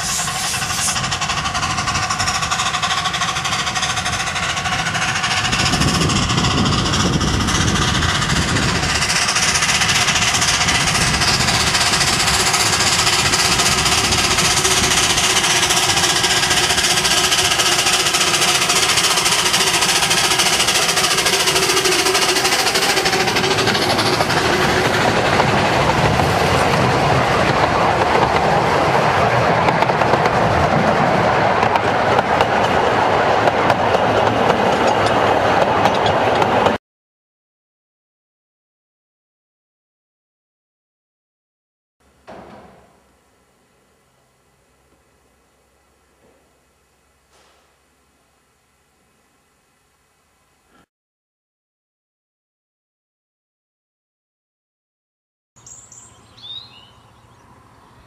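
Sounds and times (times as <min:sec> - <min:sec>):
carriages rolling on rails: 0:00.0 - 0:36.8
steam locomotive exhaust beats: 0:00.0 - 0:36.8.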